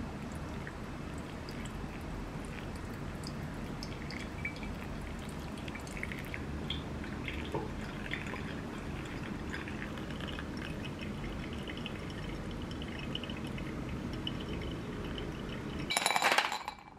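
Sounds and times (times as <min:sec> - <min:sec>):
coffee dripping: 0:00.0 - 0:16.0
water pouring from kettle: 0:07.0 - 0:15.9.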